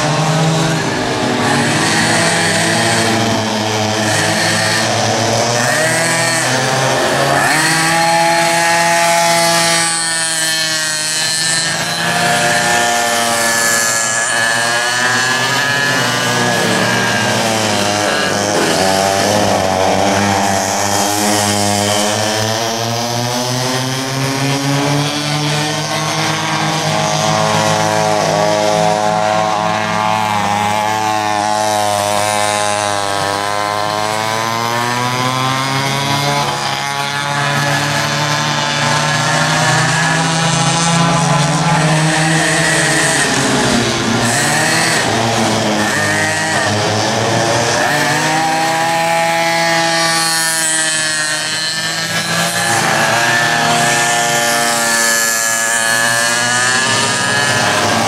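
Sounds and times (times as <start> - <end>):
two-stroke kart engines revving: 0.0 - 58.0.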